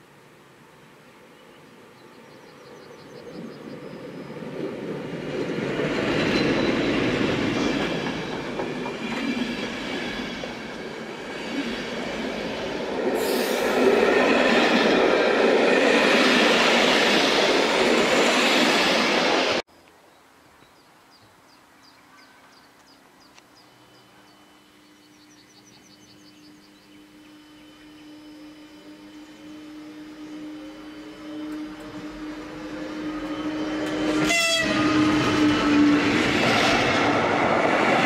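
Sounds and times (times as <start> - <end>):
train wheels rolling over rails: 3.4 - 19.6, 31.4 - 38.0
high squeal: 26.7 - 35.9.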